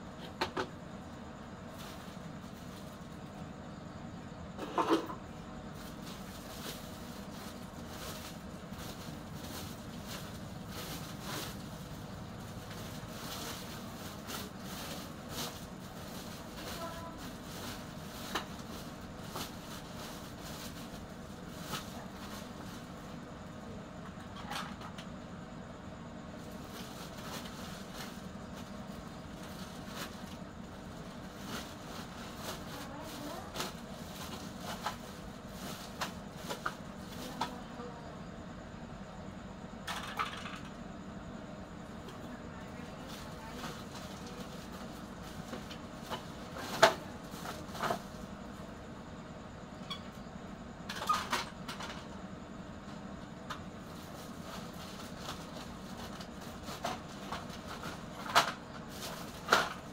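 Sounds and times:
steady low hum: 0:00.0 - 0:59.9
plastic sack rustling: 0:01.7 - 0:03.2, 0:05.7 - 0:23.2, 0:26.4 - 0:37.7, 0:42.9 - 0:48.5, 0:53.8 - 0:59.9.

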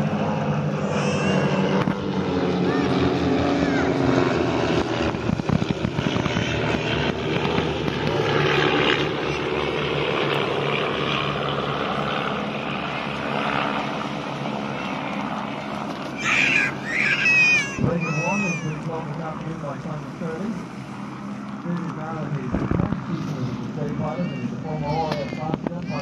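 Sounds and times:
propeller planes droning past: 0:00.0 - 0:26.0
brief high-pitched cry: 0:16.2 - 0:18.8.

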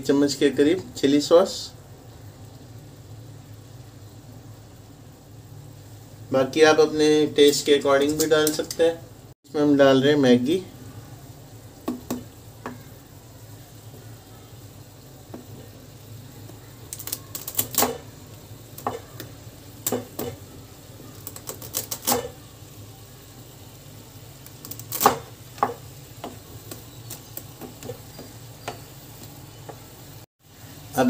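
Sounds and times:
wooden spatula knocking on pan: 0:11.8 - 0:12.8, 0:18.8 - 0:19.3, 0:19.9 - 0:20.4, 0:25.1 - 0:26.8.

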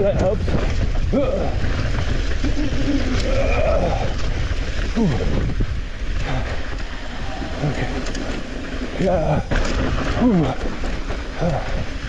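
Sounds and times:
bike tyres rattling over rocks: 0:00.0 - 0:12.0
wind buffeting microphone: 0:00.0 - 0:12.0.

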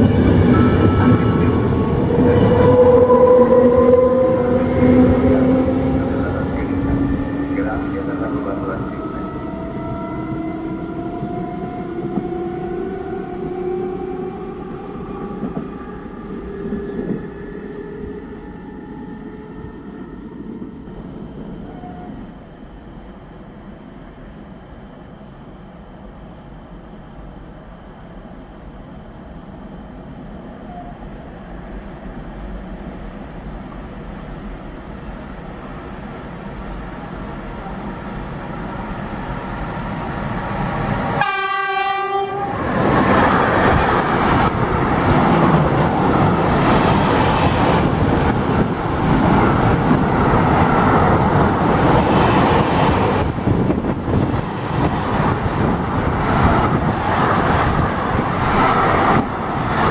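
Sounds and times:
train wheels rumbling on rails: 0:00.0 - 0:59.9
train horn blast: 0:02.1 - 0:12.4, 0:41.2 - 0:42.9.

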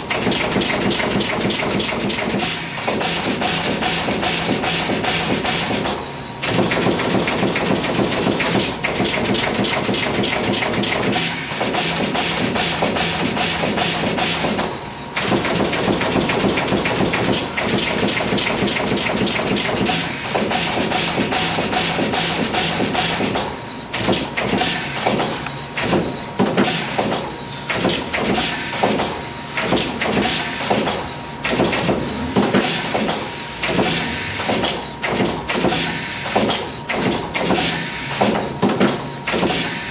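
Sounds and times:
machine rapid mechanical clicks: 0:00.0 - 0:39.9.

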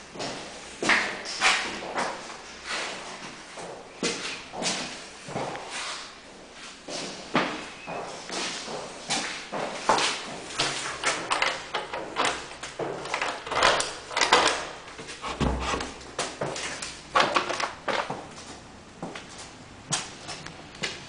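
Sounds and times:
clicks and knocks: 0:13.0 - 0:18.1
footsteps on hard floor: 0:15.0 - 0:16.8
heavy low thump: 0:15.2 - 0:16.2
door opening: 0:15.2 - 0:16.6.

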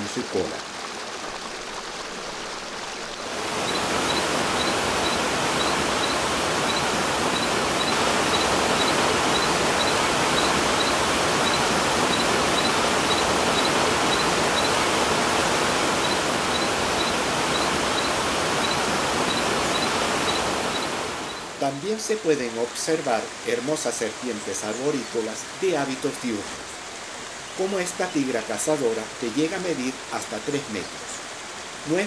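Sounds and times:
stream rushing over rocks: 0:00.0 - 0:32.0
faint high chirp: 0:03.6 - 0:14.9, 0:16.0 - 0:21.4.

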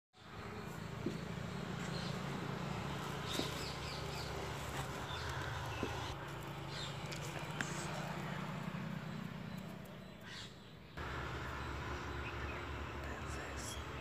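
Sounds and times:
birds calling: 0:00.2 - 0:14.0
steady low hum: 0:11.0 - 0:14.0.

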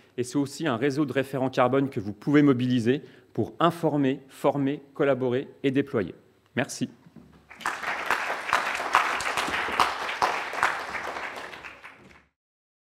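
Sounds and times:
audience applauding: 0:07.5 - 0:12.4.

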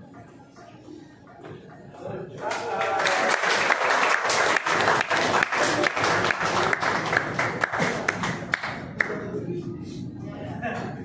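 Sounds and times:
people clapping: 0:02.3 - 0:09.3.

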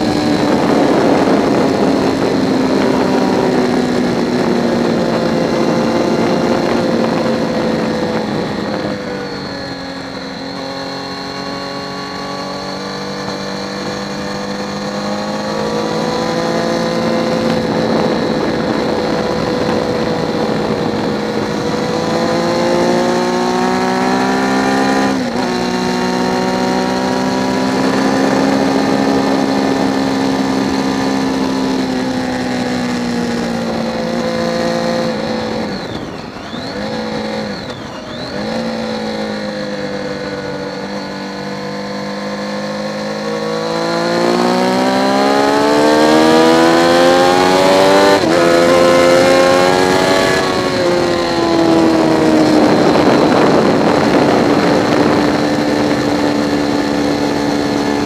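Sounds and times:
motorcycle engine at high revs: 0:00.0 - 0:58.0
wind rush: 0:00.0 - 0:58.0.

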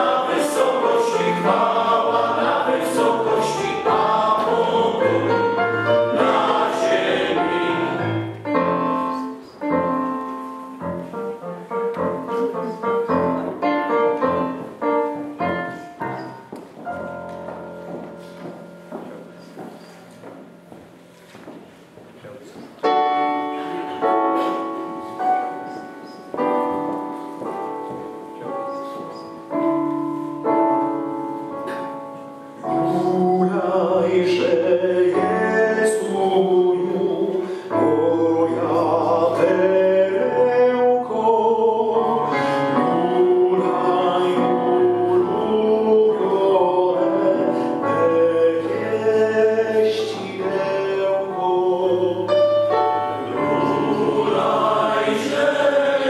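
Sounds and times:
men's choir singing a hymn: 0:00.0 - 0:09.3, 0:32.6 - 0:56.0
keyboard notes: 0:00.0 - 0:56.0.

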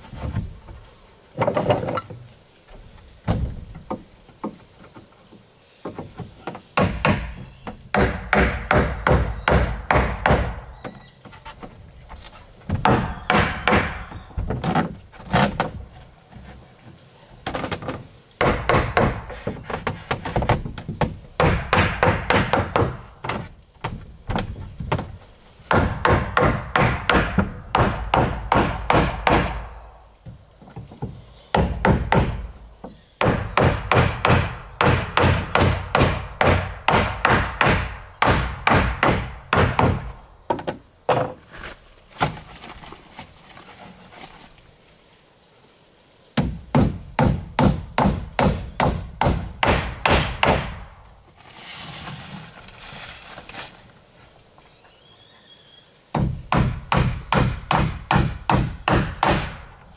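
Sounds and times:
hammer driving nails into wood: 0:06.8 - 0:10.6, 0:46.4 - 0:50.9, 0:56.2 - 0:59.6.

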